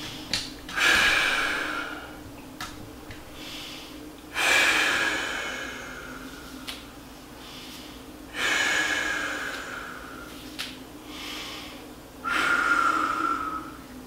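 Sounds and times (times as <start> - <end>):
person inhaling: 0.7 - 2.2, 3.3 - 6.8, 7.4 - 13.8
person exhaling loudly: 0.8 - 2.2, 12.2 - 13.8.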